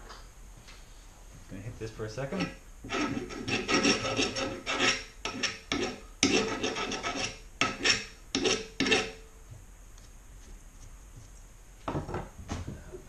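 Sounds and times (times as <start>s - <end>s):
hand tool scraping wood: 2.3s - 9.2s.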